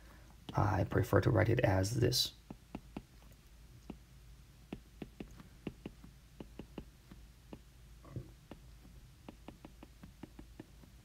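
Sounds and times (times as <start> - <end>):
stylus tapping on glass screen: 2.4 - 3.2, 4.7 - 11.0.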